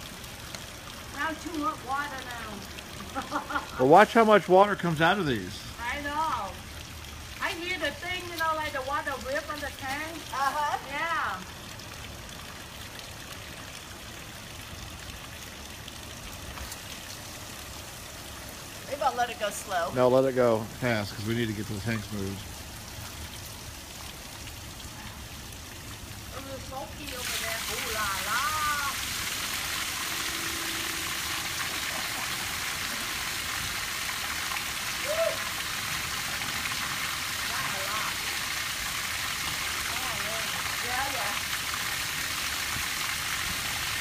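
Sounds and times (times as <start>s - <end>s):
water gushing from drain valves: 0.0s - 44.0s
short tone: 30.0s - 31.7s.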